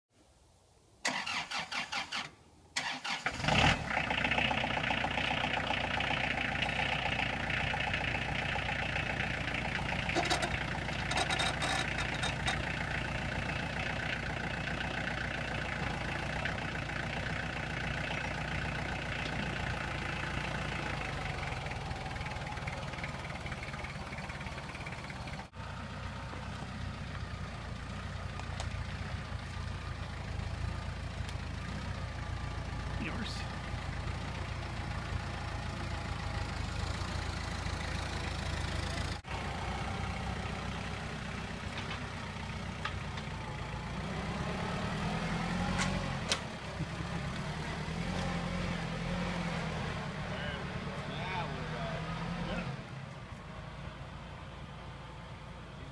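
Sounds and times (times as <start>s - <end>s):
diesel engine running: 2.8s - 55.9s
short clatter: 10.0s - 12.8s.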